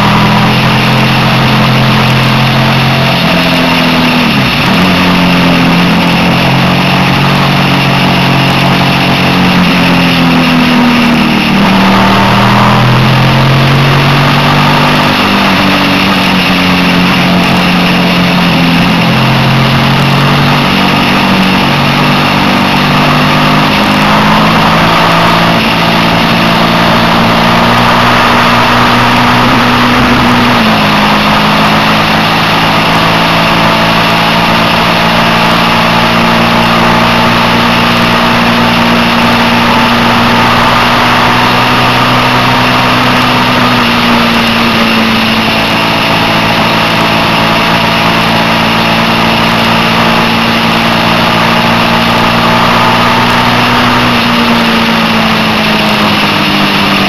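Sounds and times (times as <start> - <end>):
motorcycle engine cruising: 0.0 - 57.0.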